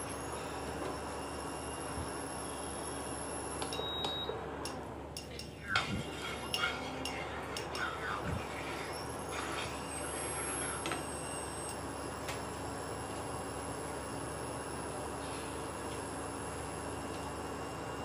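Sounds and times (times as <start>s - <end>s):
cooktop hum: 0.0s - 18.0s
wooden spatula scraping a pan: 5.8s - 7.4s.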